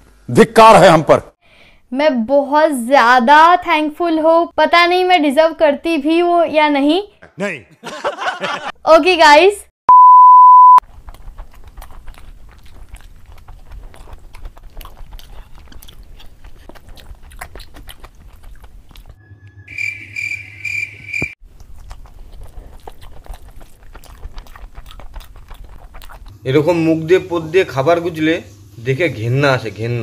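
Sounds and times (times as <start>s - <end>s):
wet chewing and lip smacking: 10.8s - 19.2s, 21.4s - 26.4s.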